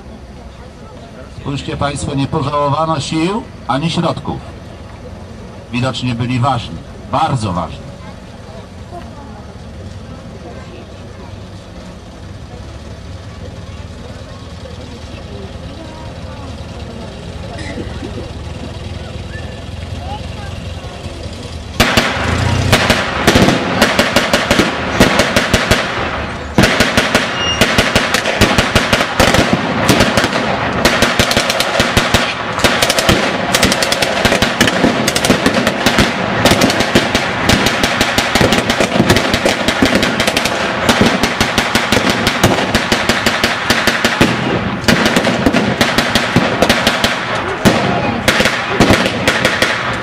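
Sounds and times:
rifle and machine gun fire: 21.8 - 50.0.

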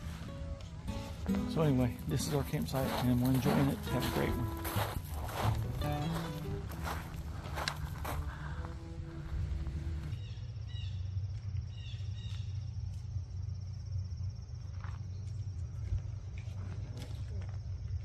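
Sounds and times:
background music note: 0.0 - 10.2
wind rumble on microphone: 7.4 - 10.4
insect trill: 10.1 - 15.8.

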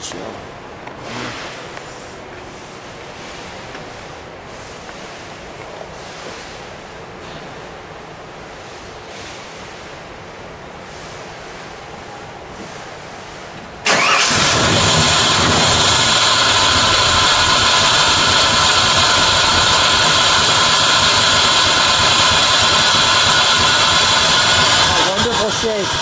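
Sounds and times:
car engine starting and idling: 13.8 - 26.0.

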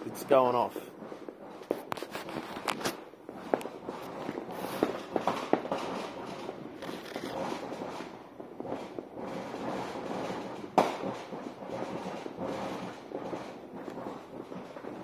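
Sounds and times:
firecrackers crackling: 0.0 - 15.0
loud firework bang: 3.3 - 12.5.

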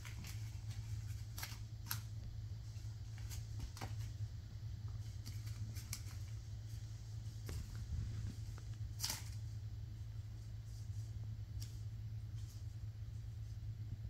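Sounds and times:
kittens scampering on tile floor: 0.0 - 13.6
steady low hum: 0.0 - 14.0.

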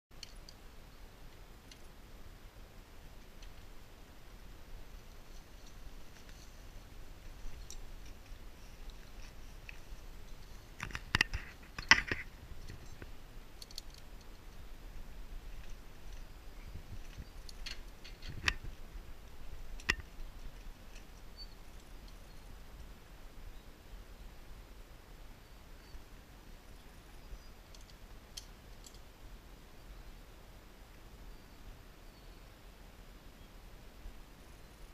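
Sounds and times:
faint steady background noise: 0.1 - 34.9
clicks and knocks of gear: 7.5 - 14.4, 17.0 - 18.8.

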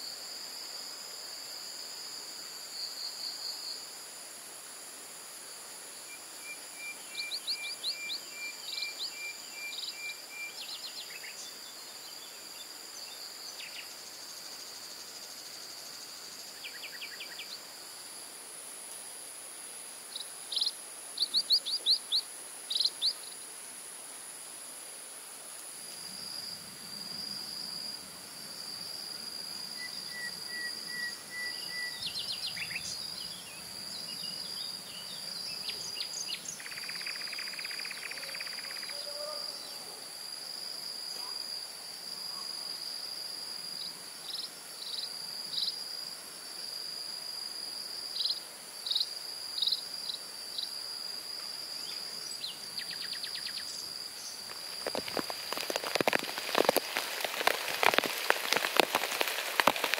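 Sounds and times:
insect trilling: 20.1 - 23.5, 26.1 - 40.2, 51.5 - 59.9.

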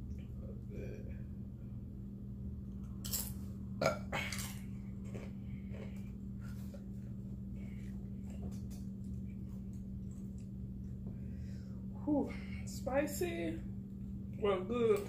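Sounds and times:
steady low hum: 0.0 - 15.0
person chewing: 3.8 - 11.0.

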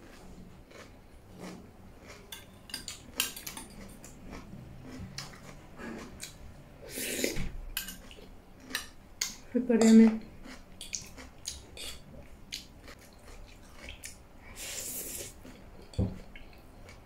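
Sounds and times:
cutlery clinking on ceramic plates: 2.3 - 3.9, 7.8 - 8.2.

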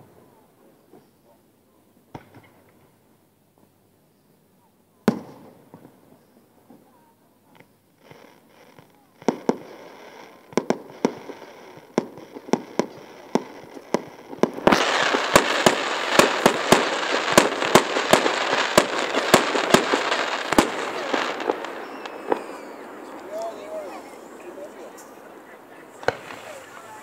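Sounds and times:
fireworks crackle: 5.1 - 27.0
distant fireworks bangs: 7.6 - 27.0.

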